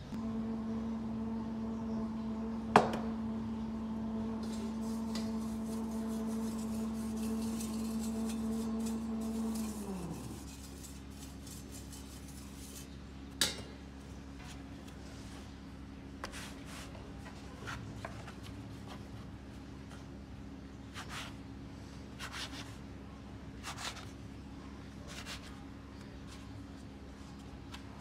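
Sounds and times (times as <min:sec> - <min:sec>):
electric motor humming: 0:00.2 - 0:11.8.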